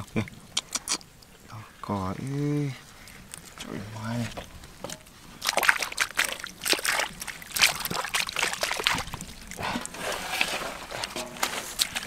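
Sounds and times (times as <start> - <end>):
hands splashing in muddy water: 5.4 - 12.0.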